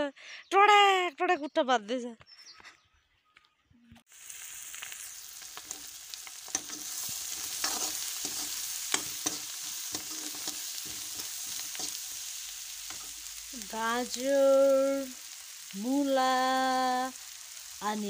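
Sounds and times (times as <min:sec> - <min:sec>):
vegetables sizzling in oil: 0:04.1 - 0:18.0
spatula scraping against pan: 0:05.6 - 0:12.2.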